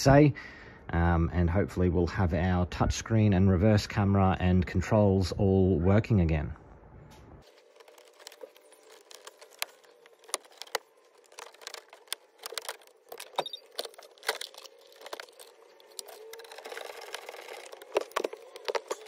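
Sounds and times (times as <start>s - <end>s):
hand tool clicking on plastic trim: 7.9s - 19.0s.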